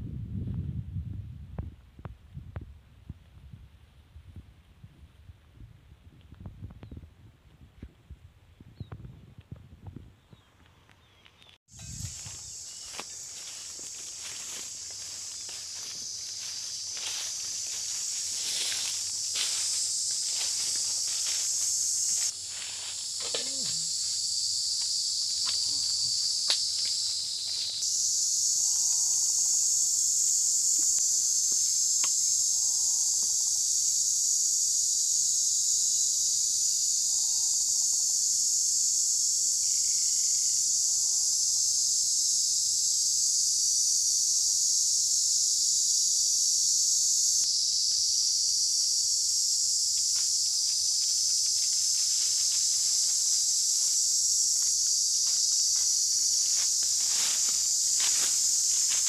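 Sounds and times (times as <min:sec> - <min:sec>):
forest insects chorus: 0:10.2 - 0:59.0
footsteps crunching through dry leaves: 0:11.9 - 0:28.0, 0:50.0 - 0:59.0.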